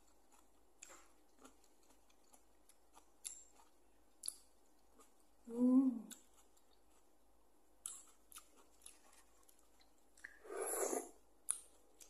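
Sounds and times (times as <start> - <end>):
slurping broth: 10.3 - 11.2.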